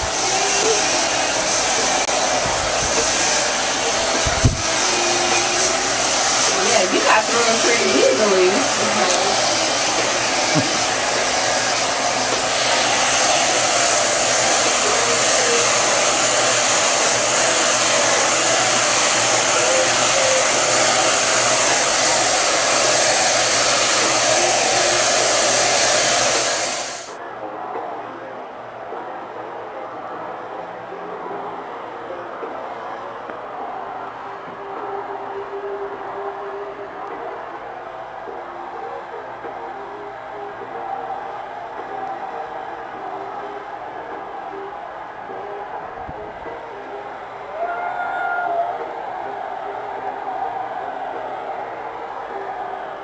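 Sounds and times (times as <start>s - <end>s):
hair dryer blowing: 0.0s - 27.2s, 33.3s - 47.7s.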